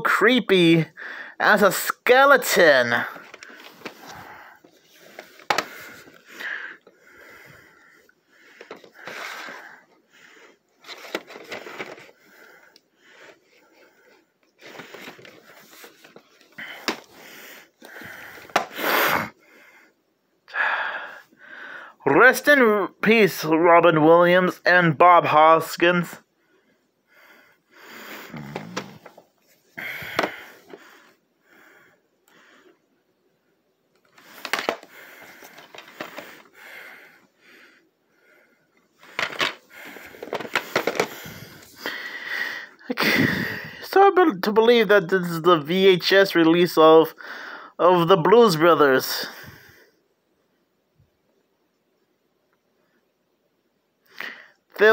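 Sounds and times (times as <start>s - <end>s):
person breathing: 0.9s - 1.4s, 3.0s - 22.0s, 26.3s - 33.0s, 34.1s - 43.8s, 47.2s - 47.8s, 49.2s - 50.1s, 54.1s - 54.7s
tape sleeves rustling: 2.3s - 7.0s, 8.5s - 9.8s, 10.8s - 19.3s, 34.0s - 36.6s, 39.0s - 41.9s
plastic cases clacking on table: 3.2s - 6.2s, 8.6s - 9.5s, 10.8s - 12.1s, 14.6s - 17.1s, 18.4s - 18.7s, 30.0s - 30.8s, 34.1s - 36.5s, 39.0s - 41.2s.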